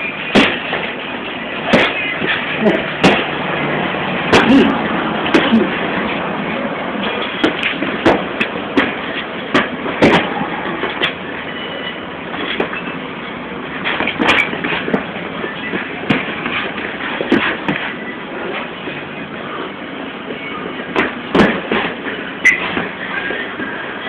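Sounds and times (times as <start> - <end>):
steady noisy hiss: 0.0 - 24.0
boxing glove punches smacking: 2.7 - 3.3.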